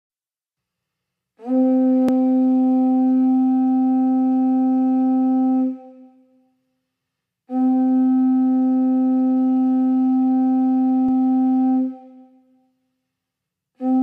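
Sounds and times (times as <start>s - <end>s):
conch shell trumpet note: 1.4s - 6.4s, 7.5s - 12.6s, 13.8s - 14.0s.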